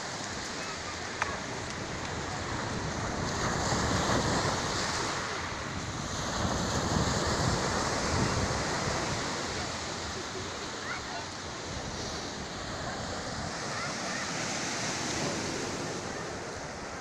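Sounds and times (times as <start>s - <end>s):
waves washing up pebble beach: 0.0s - 17.0s.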